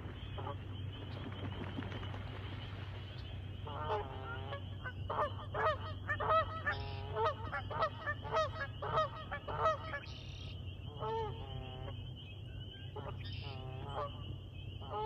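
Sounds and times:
geese honking: 3.6 - 12.0, 13.0 - 15.0.

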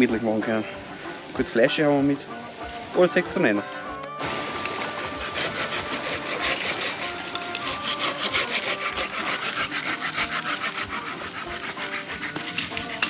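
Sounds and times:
hand saw cutting wood: 4.2 - 13.0.

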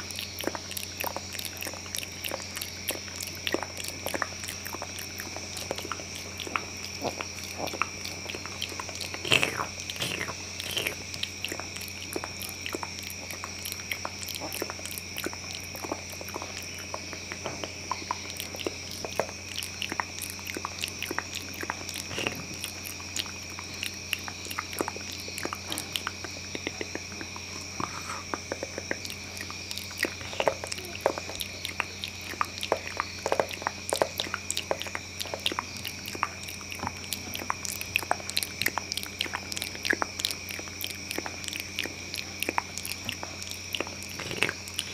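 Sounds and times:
faint steady hum: 0.0 - 44.9
wet mouth clicks and smacks: 0.0 - 44.9.

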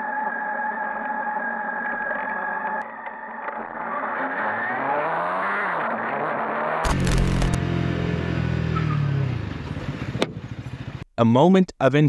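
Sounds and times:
engine accelerating: 3.8 - 11.0
vehicle engine running: 6.8 - 8.7.

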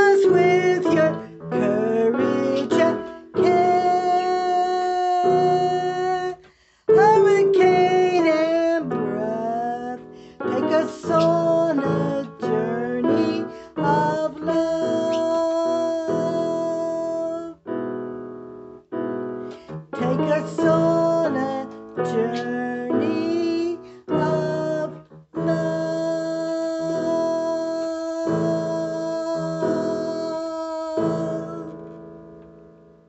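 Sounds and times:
woman singing: 0.0 - 6.3, 20.0 - 31.8
keyboard accompaniment: 0.0 - 33.0.

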